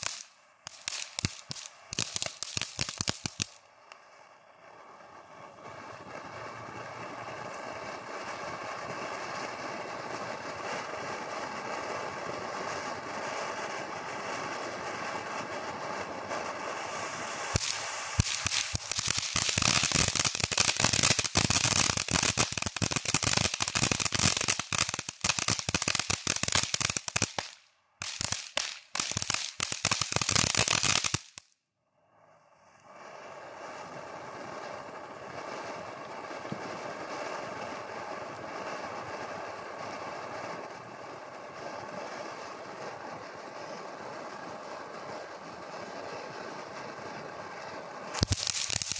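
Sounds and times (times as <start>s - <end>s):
firework fountain hissing: 0.0s - 48.9s
loud dense crackling: 48.1s - 48.9s.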